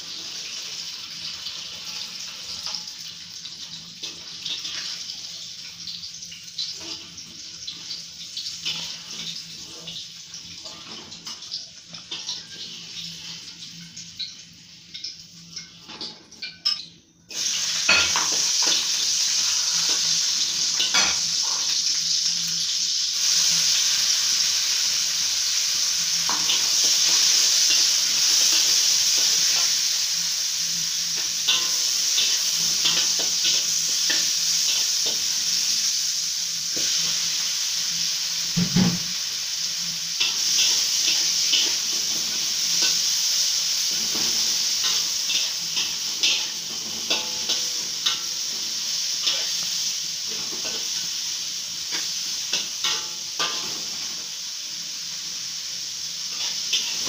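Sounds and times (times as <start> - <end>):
oil sizzling in a wok: 0.0 - 57.0
metal spatula scraping a wok: 26.1 - 36.2, 40.2 - 54.4, 56.2 - 57.0.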